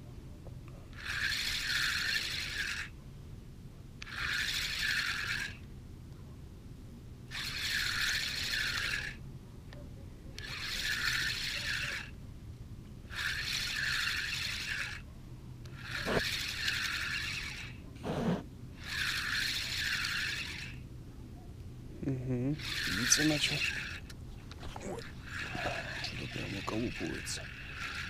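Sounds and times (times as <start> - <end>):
fishing reel whirring: 0.9 - 2.9, 4.0 - 5.7, 7.3 - 9.2, 10.4 - 12.2, 13.1 - 17.8, 18.8 - 20.9, 22.6 - 24.2, 24.9 - 28.0.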